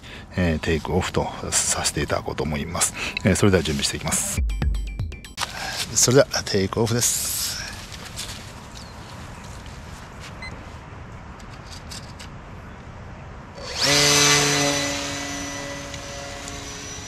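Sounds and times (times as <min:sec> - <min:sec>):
faint outdoor background: 0:00.0 - 0:17.0
model plane motor whine: 0:13.6 - 0:17.0.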